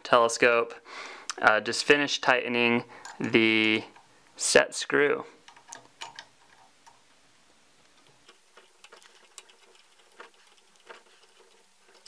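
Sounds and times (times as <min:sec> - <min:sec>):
handling of parts: 0:02.9 - 0:04.2, 0:05.4 - 0:07.1.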